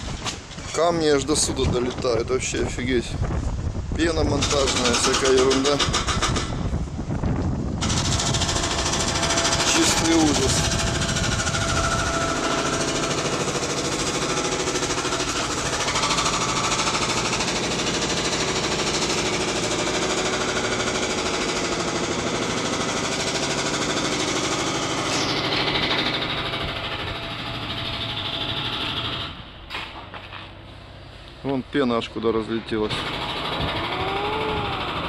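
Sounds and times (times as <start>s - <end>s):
demolition hammer pounding concrete: 4.1s - 6.7s, 7.8s - 29.4s, 32.8s - 35.0s.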